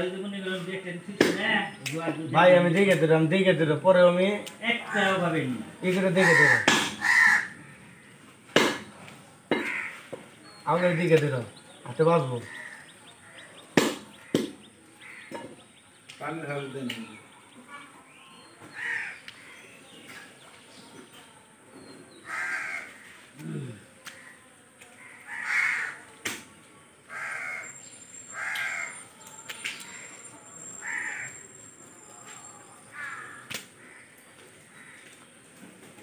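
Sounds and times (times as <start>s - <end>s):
crow cawing: 6.1s - 8.2s, 9.5s - 10.2s, 12.3s - 13.6s, 14.2s - 15.5s, 18.8s - 19.7s, 22.2s - 23.2s, 24.0s - 26.1s, 27.1s - 29.0s, 30.8s - 31.4s, 32.9s - 35.3s.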